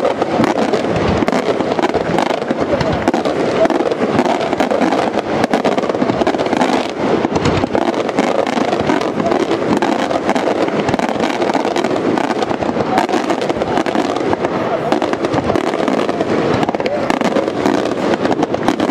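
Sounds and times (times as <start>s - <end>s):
fireworks barrage: 0.0s - 18.9s.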